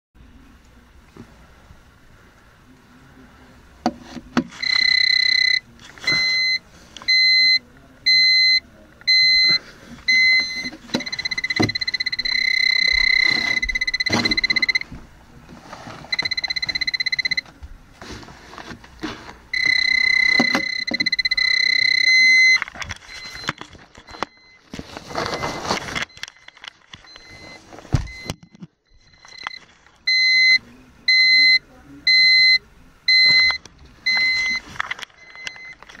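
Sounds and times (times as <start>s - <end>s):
electronic alarm beeping: 4.6s - 14.9s, 16.1s - 17.5s, 19.5s - 36.0s.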